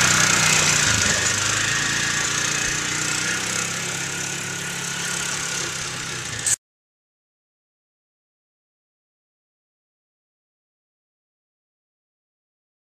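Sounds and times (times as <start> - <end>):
utility vehicle engine driving away: 0.0 - 6.6.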